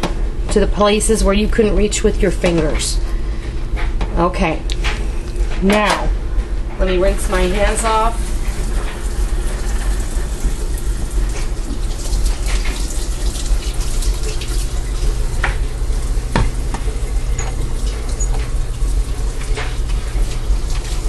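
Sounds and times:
tap water running into sink: 8.1 - 21.0.

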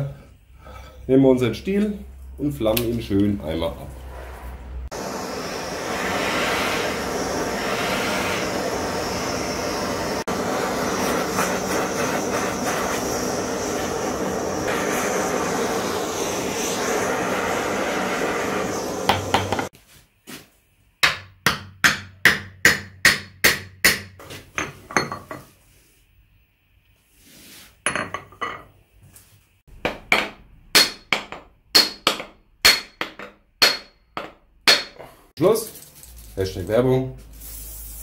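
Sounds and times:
gas torch flame roaring: 2.7 - 19.7.

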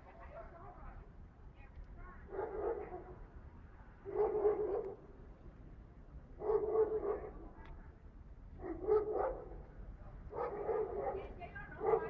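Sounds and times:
dog barking: 2.3 - 3.1, 4.1 - 5.0, 6.4 - 7.4, 8.6 - 9.6, 10.3 - 12.0.

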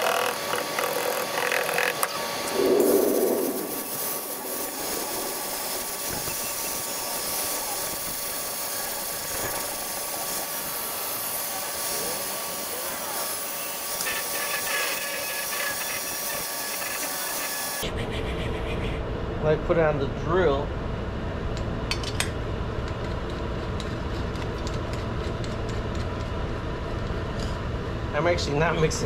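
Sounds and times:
angle grinder grinding steel: 0.0 - 17.8.

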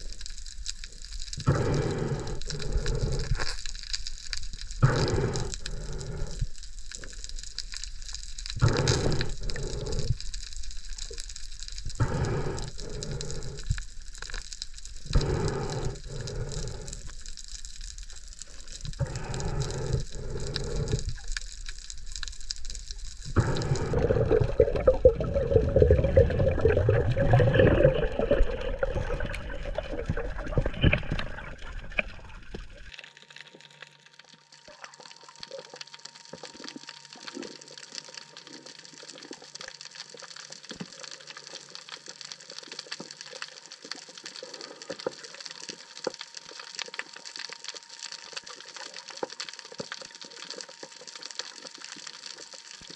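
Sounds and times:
faint underwater crackling: 0.0 - 52.9
water rushing underwater: 1.4 - 3.5, 18.5 - 33.3.

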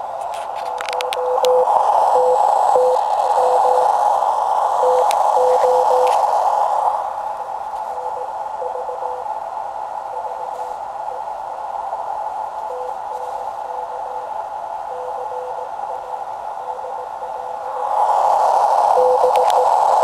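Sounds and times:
shortwave receiver hiss: 0.0 - 20.0
faint morse code tone: 0.8 - 4.0, 4.8 - 6.2, 7.8 - 9.3, 10.1 - 11.3, 12.7 - 17.6, 18.9 - 20.0.

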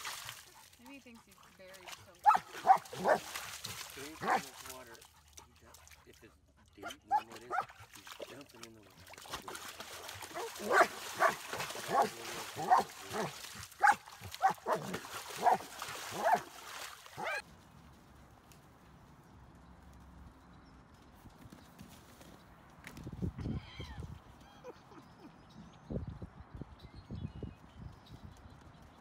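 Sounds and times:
dog splashing in puddle: 0.0 - 6.2, 6.8 - 17.5
dog barking: 2.2 - 3.3, 4.2 - 4.5, 6.8 - 7.7, 10.3 - 16.5, 17.2 - 17.4.

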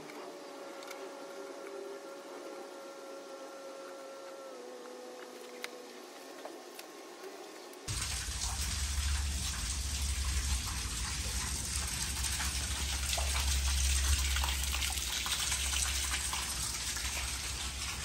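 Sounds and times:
steady low rumble: 7.9 - 18.0
water gushing onto pavers: 7.9 - 18.0.

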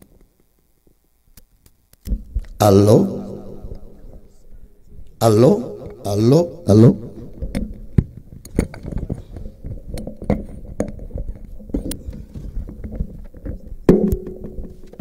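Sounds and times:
faint steady hum: 0.0 - 15.0
microphone handling clicks and thuds: 2.0 - 2.6, 7.3 - 15.0.

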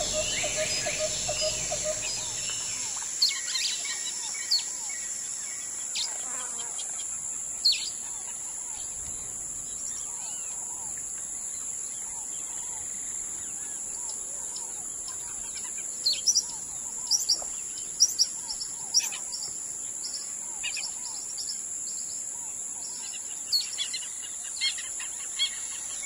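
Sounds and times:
birds chirping: 0.0 - 3.1
rapid pulsed call: 0.0 - 3.3
high-pitched insect drone: 0.0 - 6.2.

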